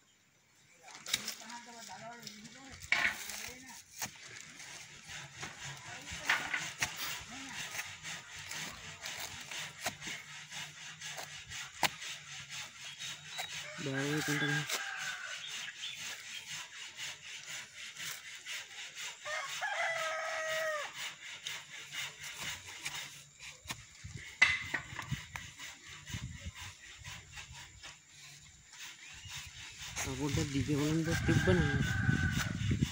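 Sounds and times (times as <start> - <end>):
rooster crowing: 13.6 - 15.6, 19.2 - 21.1, 30.7 - 32.9
wooden stick knocking on stalk: 23.7 - 25.5.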